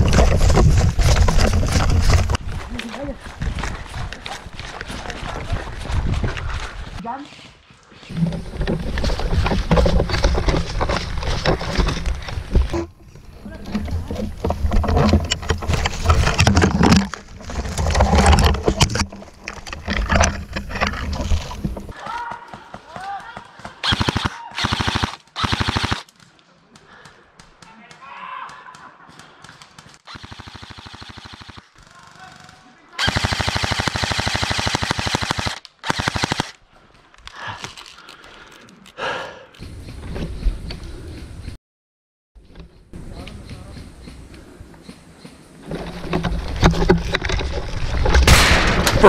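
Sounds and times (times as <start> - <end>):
camera handling rustles and knocks: 13.7 - 22.0
airsoft rifle full-auto bursts: 23.8 - 26.1, 30.1 - 32.0, 33.0 - 36.6.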